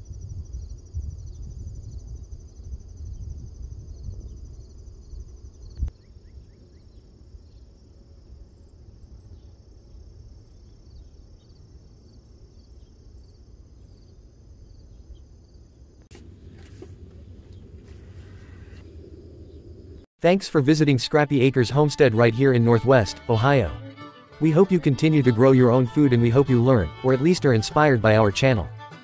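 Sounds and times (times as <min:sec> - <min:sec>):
crickets trilling: 0:00.0 - 0:20.0
low rumble: 0:16.1 - 0:20.1.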